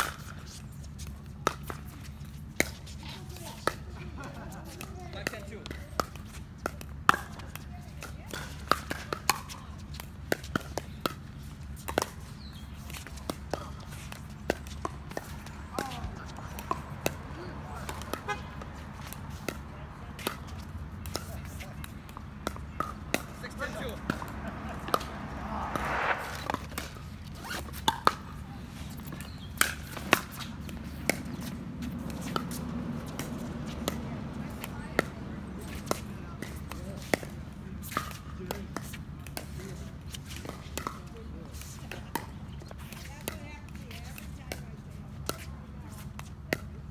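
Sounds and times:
paddle hitting pickleball: 4.7 - 44.6
steady low rumble: 23.0 - 27.2.

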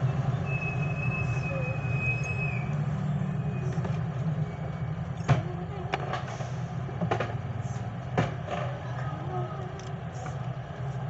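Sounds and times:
traffic rumble: 0.0 - 11.0.

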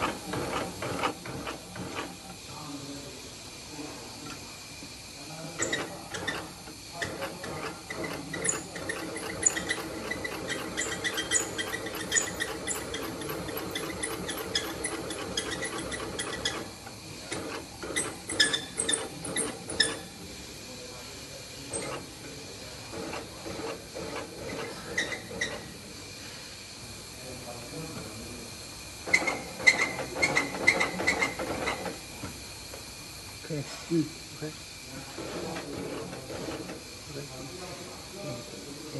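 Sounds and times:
industrial sewing machine stitching: 0.0 - 2.4, 5.6 - 20.2, 21.7 - 22.2, 22.9 - 25.7, 29.0 - 32.0, 35.1 - 36.8
sewing machine clicks: 5.6 - 16.7.

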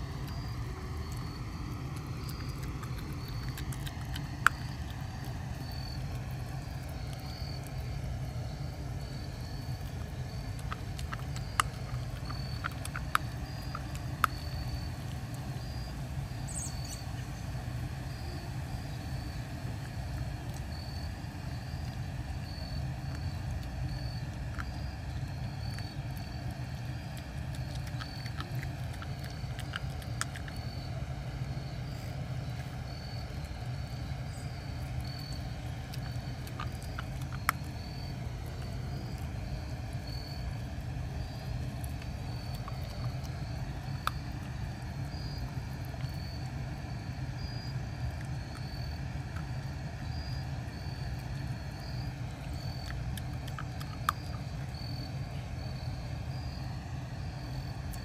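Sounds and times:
puppy chewing: 0.0 - 58.0
faint high chirp: 15.6 - 17.4.

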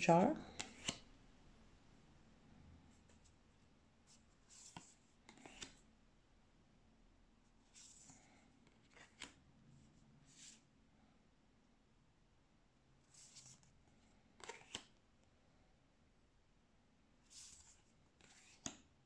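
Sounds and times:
cards swishing and tapping: 0.5 - 1.1, 4.1 - 5.8, 14.4 - 14.9, 17.3 - 18.8.

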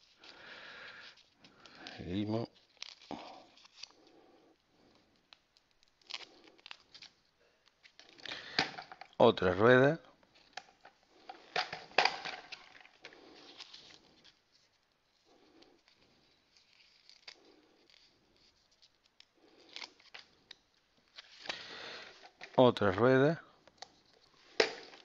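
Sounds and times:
paper sheet crinkling: 0.0 - 4.2, 4.8 - 8.6, 10.3 - 22.6.

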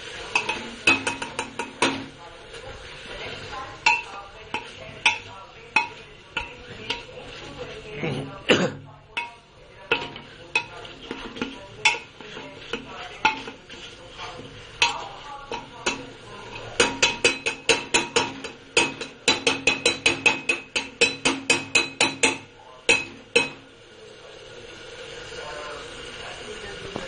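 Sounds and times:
metal masher knocking metal pot: 0.3 - 2.2, 3.8 - 7.2, 9.2 - 23.6.

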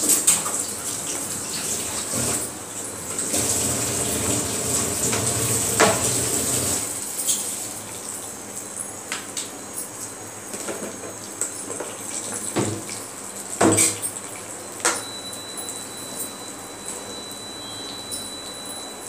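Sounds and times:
hot oil sizzling and popping: 3.2 - 7.7.

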